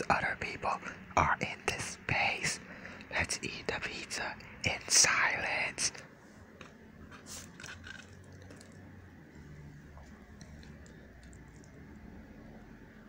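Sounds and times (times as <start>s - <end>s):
faint clicks and handling noises: 9.9s - 11.8s.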